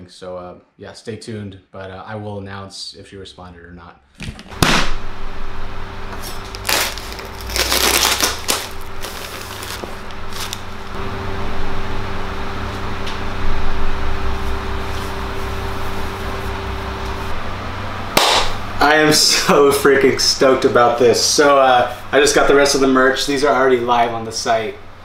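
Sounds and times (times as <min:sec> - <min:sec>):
steady low hum: 0:01.2 - 0:25.0
fabric rustling: 0:06.2 - 0:11.0.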